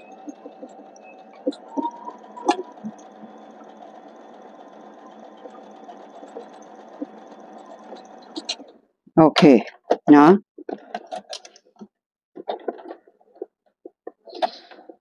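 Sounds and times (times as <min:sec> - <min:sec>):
sewing machine whirring: 0:00.0 - 0:08.8.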